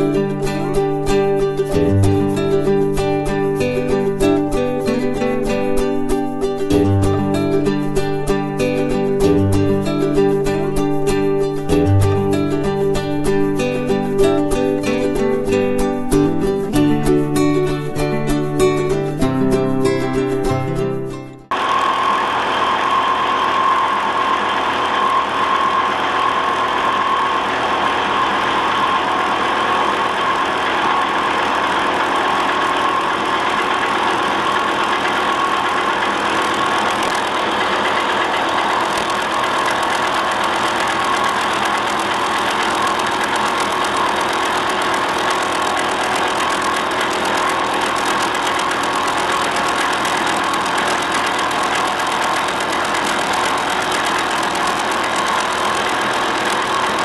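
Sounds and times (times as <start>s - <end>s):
cutter whine: 21.5s - 57.0s
milling machine cutting metal: 21.5s - 57.0s.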